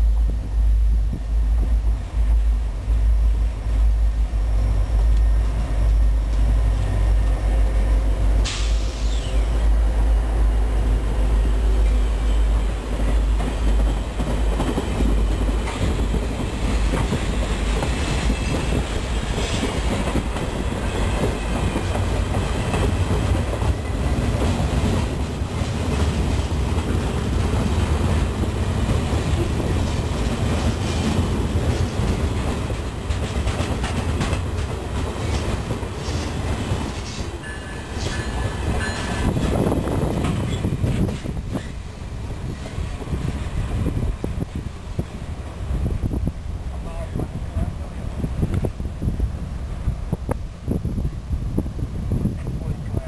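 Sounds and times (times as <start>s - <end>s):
freight train rolling rumble: 0.0s - 53.0s
wheels clacking over rail joints: 11.8s - 45.2s.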